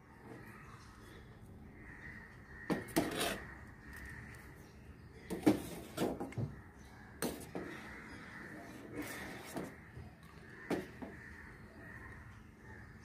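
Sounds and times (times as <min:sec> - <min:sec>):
metal spoon scraping a saucepan: 0:02.9 - 0:03.5.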